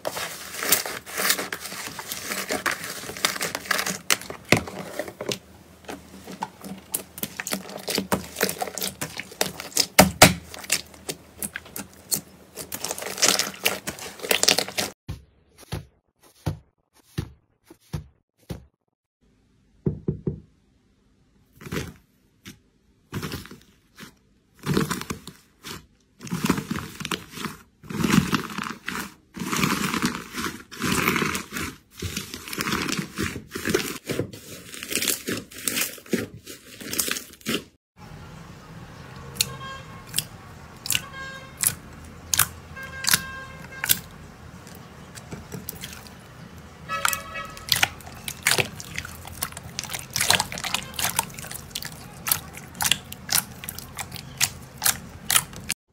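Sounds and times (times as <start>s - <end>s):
slime crackling and popping: 6.8s - 15.0s, 46.9s - 55.8s.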